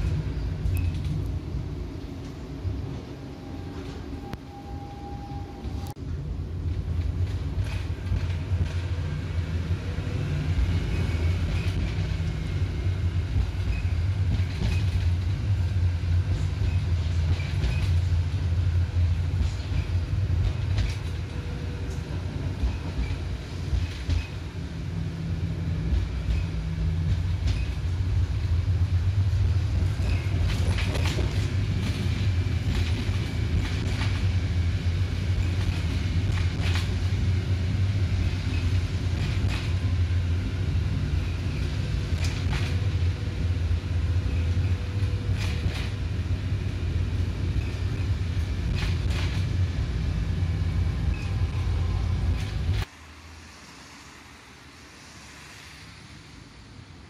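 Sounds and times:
tram rumbling along track: 0.0 - 57.0
wheels clicking over rails: 10.6 - 18.4, 29.6 - 37.4.

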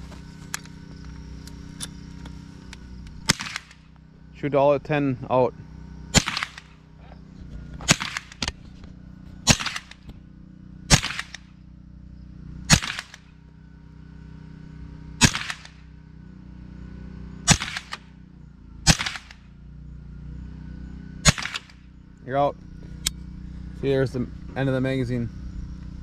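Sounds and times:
rifle shots with echo: 3.2 - 3.9, 6.1 - 6.8, 7.8 - 8.6, 9.4 - 10.1, 10.9 - 11.6, 12.7 - 13.3, 15.2 - 15.9, 17.5 - 18.2, 18.8 - 19.5, 21.2 - 21.8.

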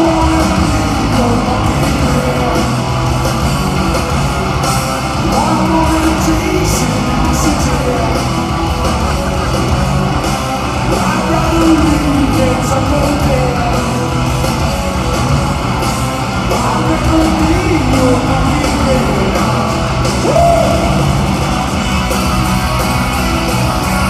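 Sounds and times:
man singing loudly: 0.0 - 2.8, 5.2 - 8.2, 10.9 - 14.1, 16.5 - 21.2
bass: 0.0 - 24.0
distorted electric guitars: 0.0 - 24.0
drums: 0.0 - 24.0.

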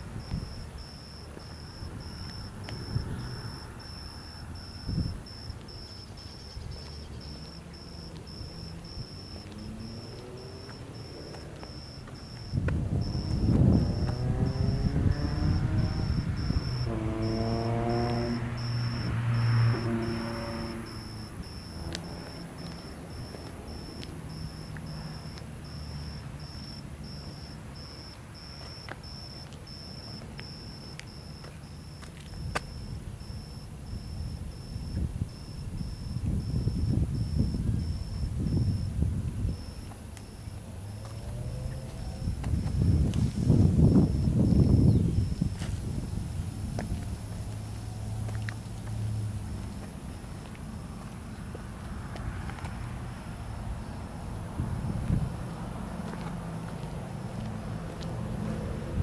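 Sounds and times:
wind on microphone: 0.0 - 24.5, 32.3 - 40.0, 41.2 - 47.3, 54.4 - 55.7
insect chirping: 0.0 - 52.4, 53.2 - 55.7.

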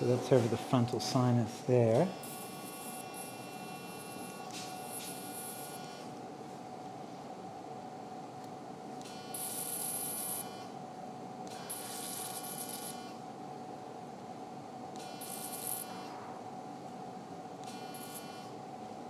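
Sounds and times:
steady hum: 0.0 - 19.0
buzzing activation tone: 2.0 - 6.2, 9.0 - 10.7, 11.4 - 13.2, 14.9 - 16.7, 17.6 - 18.6.

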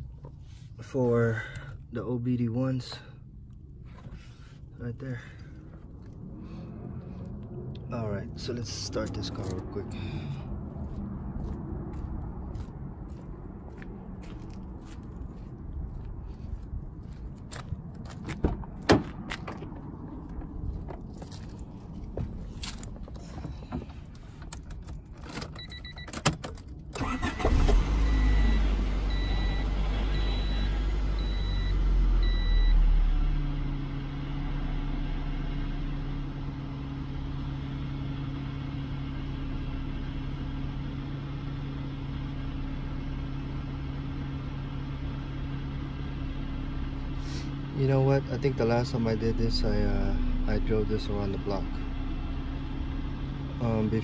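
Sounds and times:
car engine idling: 0.0 - 26.0, 26.6 - 54.0
keys rattling: 20.2 - 26.8.

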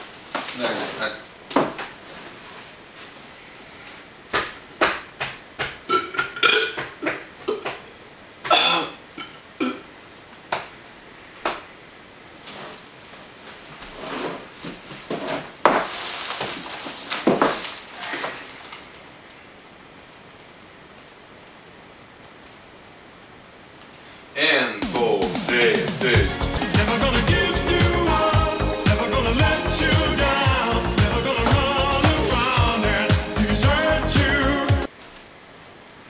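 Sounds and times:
vocal noises close to microphone: 24.9 - 34.9.

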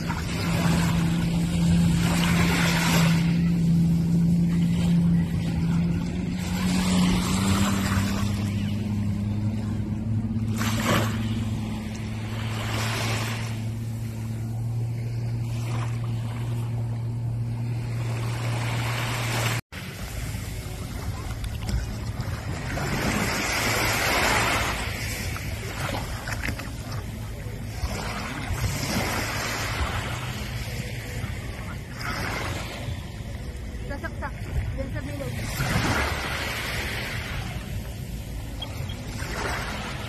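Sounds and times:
watercraft engine humming: 0.0 - 40.0
wind: 0.0 - 40.0.

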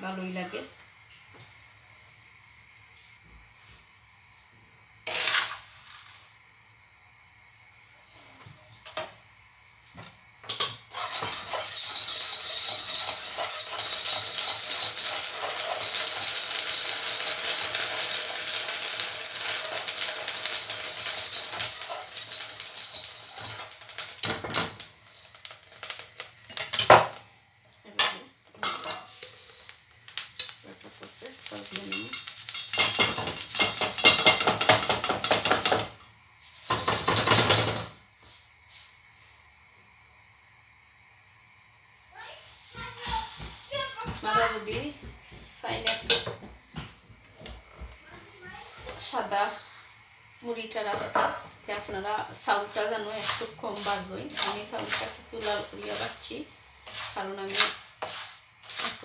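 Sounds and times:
rice grains popping in hot salt: 5.0 - 6.2, 10.5 - 27.3, 28.6 - 36.0, 50.9 - 59.0
whisk stirring in pot: 10.5 - 24.7, 31.8 - 35.8, 50.9 - 59.0
pot clicks and knocks: 32.6 - 35.9.

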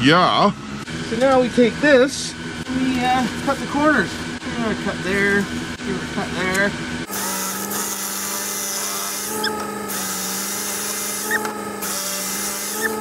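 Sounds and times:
power cutter motor whine: 2.3 - 13.0
hiss of cutting plastic: 9.0 - 13.0.

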